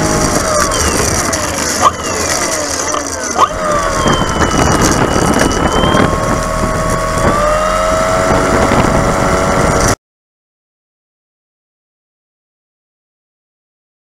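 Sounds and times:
model airplane motor and propeller: 0.0s - 10.0s
rushing wind: 0.0s - 10.0s.

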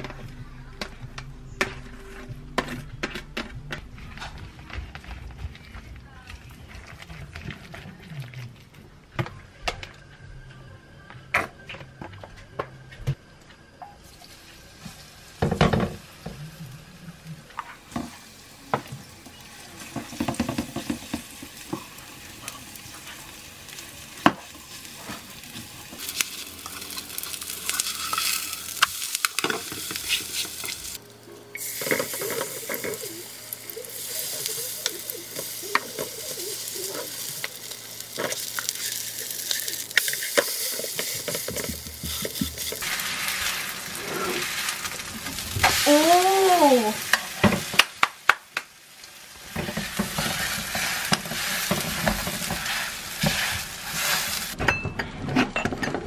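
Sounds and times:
batter sizzling in oil: 14.0s - 54.6s.

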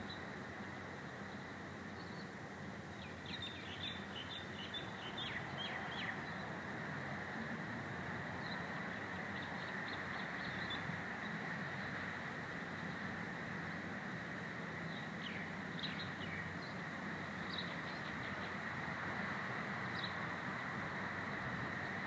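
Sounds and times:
small birds chirping: 1.1s - 6.6s, 8.3s - 13.1s, 14.6s - 22.0s.

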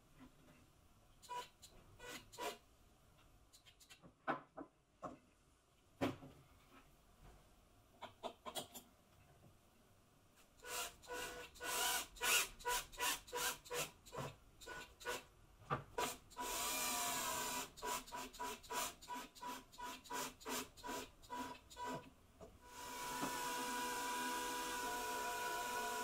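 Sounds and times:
cordless drill driving screws: 16.0s - 22.0s, 22.8s - 26.0s.

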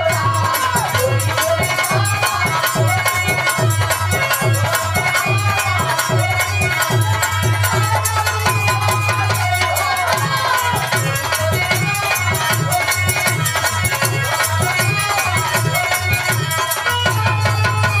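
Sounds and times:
men singing in chorus: 0.0s - 16.7s
dholak drum beat: 0.0s - 18.0s
harmonium: 0.0s - 18.0s
rattling hand percussion: 0.0s - 18.0s.

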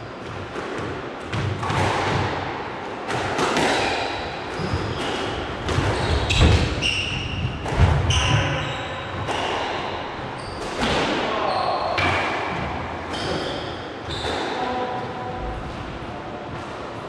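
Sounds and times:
squash ball hitting rackets and walls: 0.0s - 15.1s
shoes squeaking on court: 3.8s - 9.2s.

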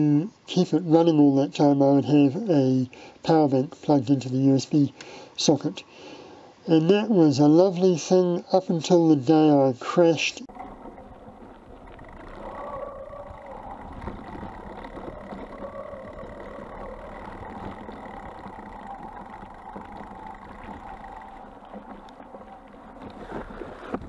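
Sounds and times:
loaded bike rattling: 10.5s - 24.0s
wind noise: 10.5s - 24.0s.

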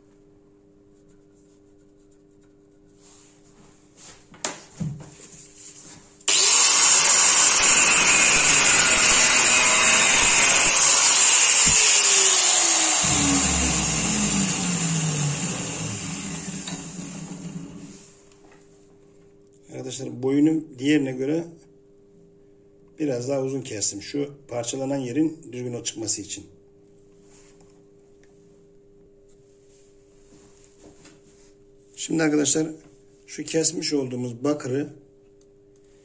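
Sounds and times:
angle grinder cutting metal: 6.3s - 17.9s.

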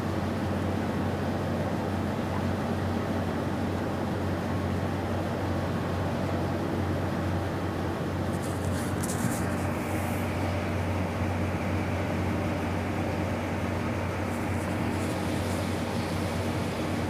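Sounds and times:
low machinery hum: 0.0s - 17.0s
microphone rustles: 8.3s - 10.2s.

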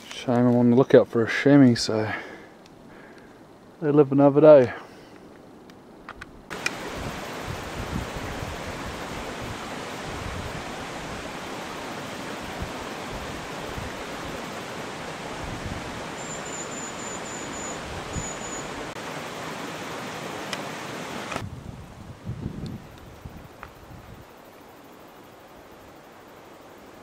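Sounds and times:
stream rushing: 6.5s - 21.5s.

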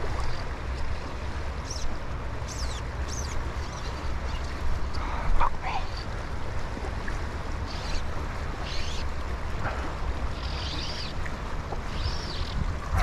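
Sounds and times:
river water rushing: 0.0s - 13.0s
wind buffeting microphone: 6.2s - 13.0s.

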